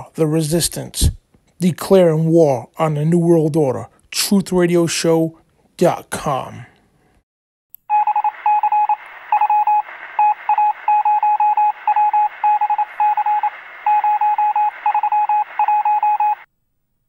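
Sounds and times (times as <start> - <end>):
morse code beeps: 7.9 - 16.5
radio static hiss: 8.1 - 16.5.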